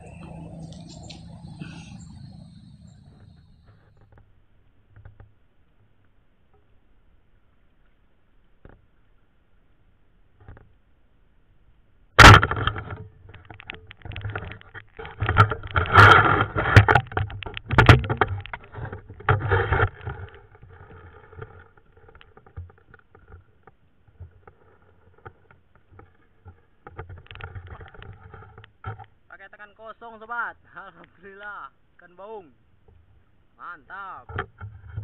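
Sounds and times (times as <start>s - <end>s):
sharp underwater crack: 12.2s - 22.2s
underwater knocking and sloshing: 12.2s - 29.2s, 34.3s - 35.0s.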